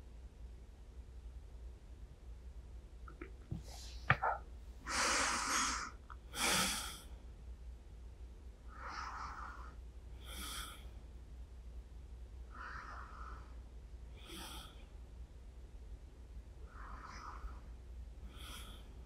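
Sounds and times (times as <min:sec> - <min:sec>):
woman breathing slowly: 0:04.8 - 0:07.2, 0:08.7 - 0:11.1, 0:12.4 - 0:15.0, 0:16.6 - 0:19.0.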